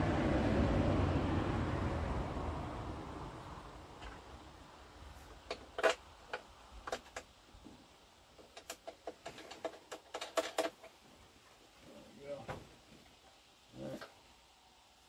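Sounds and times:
low steady noise: 0.0s - 15.0s
small hard parts clicking: 5.4s - 7.4s, 8.4s - 11.0s.

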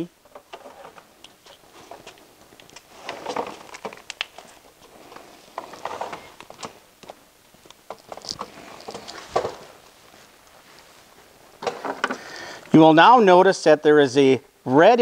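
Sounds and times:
clips and cable clicking: 0.3s - 9.6s.

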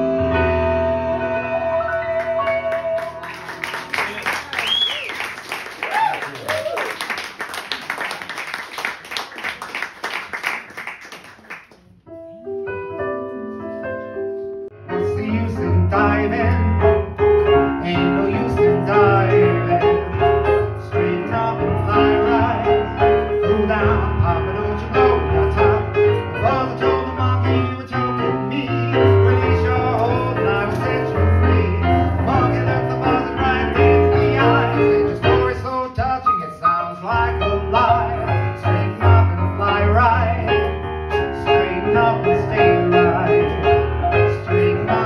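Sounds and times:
audience clapping: 1.9s - 12.0s.

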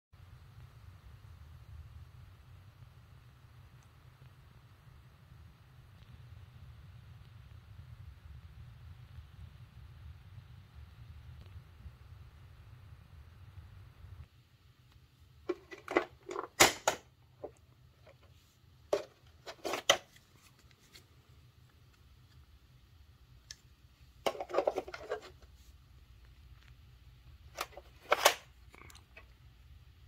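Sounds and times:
plastic vacuum tools clattering: 15.5s - 18.3s, 18.9s - 20.1s, 24.2s - 25.4s, 27.6s - 28.5s.

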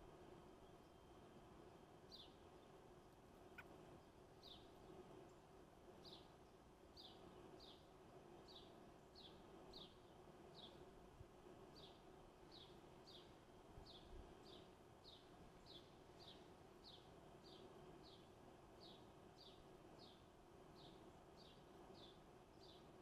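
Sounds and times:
faint bird chirps: 2.1s - 5.4s.

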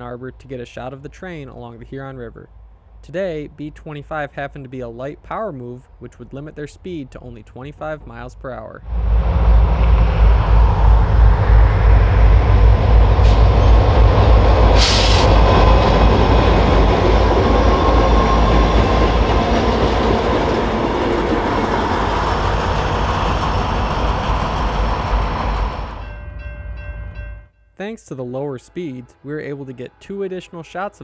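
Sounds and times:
locomotive engine rumble: 8.9s - 26.0s
wheel and rail noise: 8.9s - 26.2s.

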